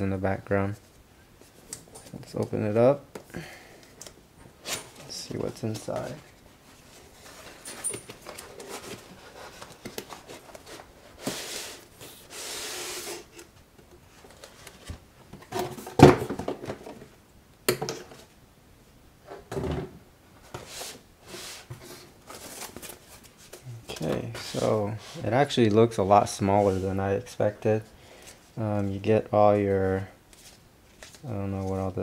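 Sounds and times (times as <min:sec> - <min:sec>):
cardboard sliding: 0:08.3 - 0:13.5.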